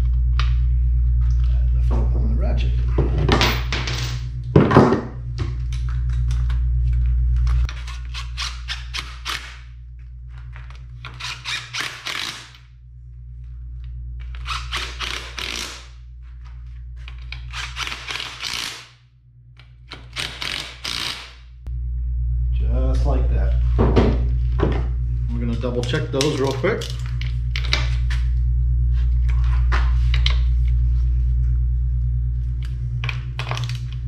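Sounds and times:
steady low hum: 0.0s - 34.0s
cordless driver running: 10.3s - 12.7s, 13.4s - 16.0s, 17.0s - 18.9s, 19.8s - 21.4s.

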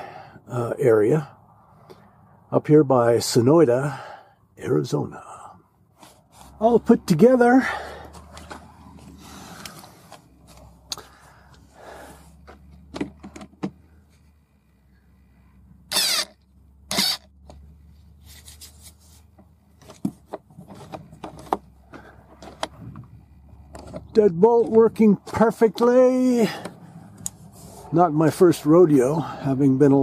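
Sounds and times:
cordless screwdriver whirring: 15.9s - 17.3s.

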